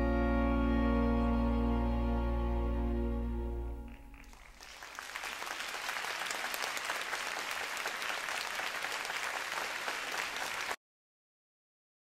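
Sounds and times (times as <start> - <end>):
audience applauding: 3.8 - 10.8.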